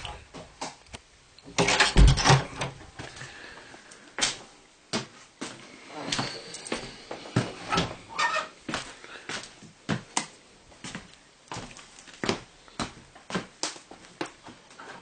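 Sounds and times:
wooden door knocks and thud: 1.9s - 2.5s.

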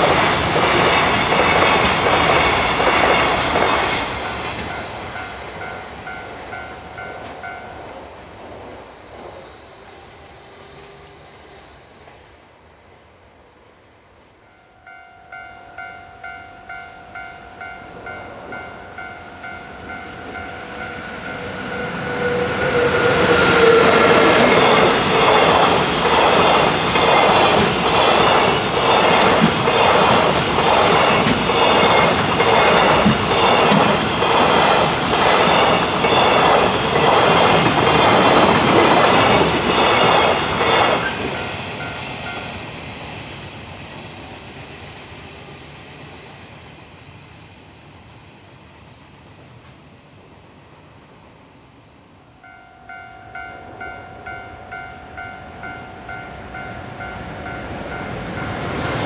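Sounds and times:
freight train passing: 0.0s - 59.0s
level crossing alarm bell: 14.5s - 22.0s, 52.4s - 58.6s.

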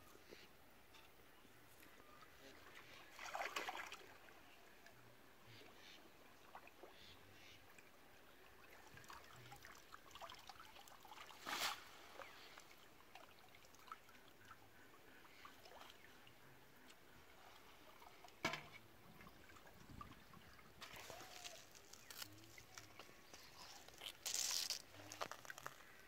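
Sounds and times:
shallow water trickling and sloshing: 1.0s - 26.0s
water splash: 3.1s - 4.1s.

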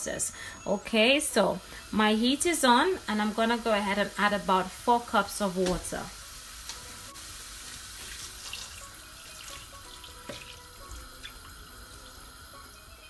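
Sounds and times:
water pouring into a pan: 6.3s - 12.9s.

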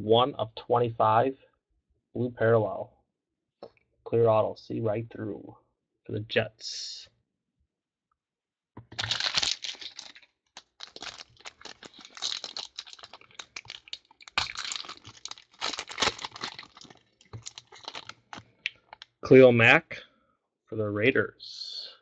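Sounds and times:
foil pack crinkling: 8.9s - 19.0s.

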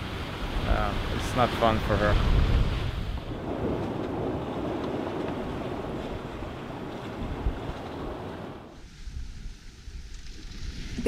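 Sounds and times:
wind and water rushing: 0.0s - 11.0s
wind buffeting microphone: 0.0s - 11.0s.

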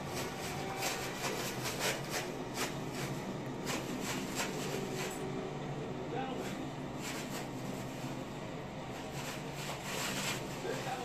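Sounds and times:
paper crinkling and tearing: 0.0s - 5.3s, 6.4s - 8.2s, 8.9s - 11.0s.

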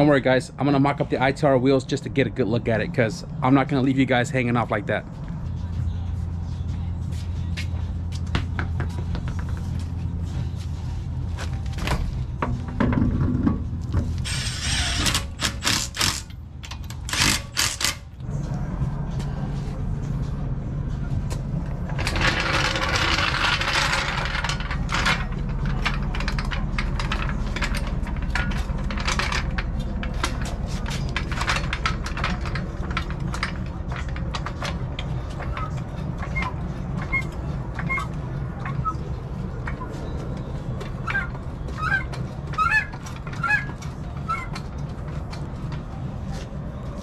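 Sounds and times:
steady low hum: 0.0s - 47.0s
clanks and rattles of car work: 7.1s - 18.4s, 21.0s - 47.0s.

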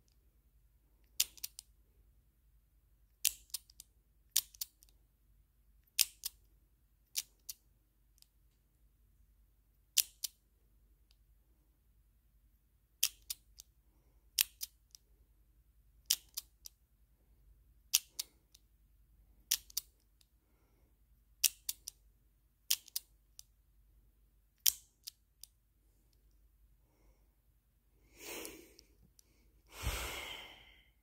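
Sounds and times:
padlock shackle clacking: 1.0s - 1.7s, 3.1s - 4.9s, 5.8s - 7.6s, 9.9s - 10.4s, 16.0s - 16.8s, 19.4s - 20.0s, 21.4s - 22.0s, 22.6s - 23.5s.

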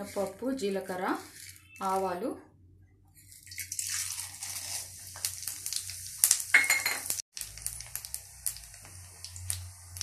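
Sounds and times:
seeds sizzling in hot oil: 0.0s - 2.2s, 3.2s - 10.0s.

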